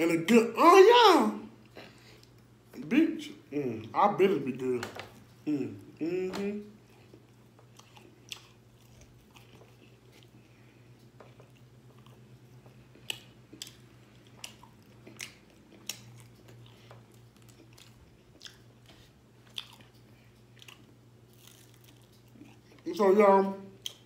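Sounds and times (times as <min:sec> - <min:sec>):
faint low hum: 0:00.0 - 0:24.0
person chewing food: 0:01.6 - 0:02.6, 0:06.8 - 0:22.9, 0:23.8 - 0:24.0.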